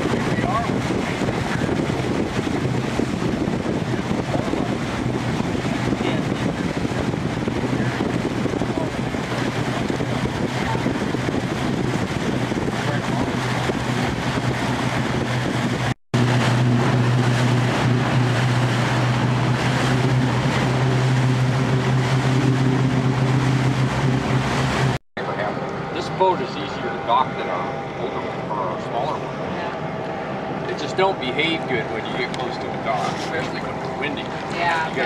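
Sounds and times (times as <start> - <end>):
wind noise: 0.0 - 25.0
motorboat engine running: 0.0 - 35.0
water wash: 0.0 - 35.0.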